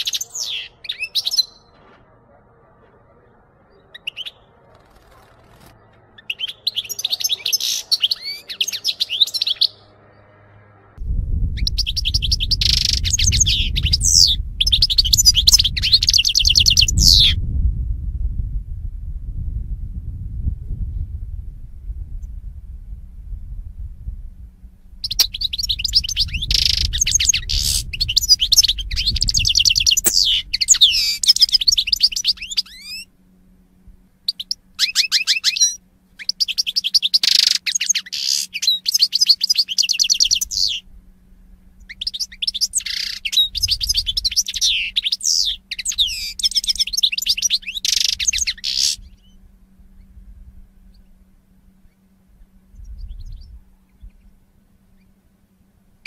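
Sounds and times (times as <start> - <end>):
goldfinch twittering song: 0.0 - 1.8, 3.7 - 5.0, 5.8 - 9.9, 11.6 - 17.4, 25.0 - 33.1, 34.3 - 40.8, 41.8 - 49.4.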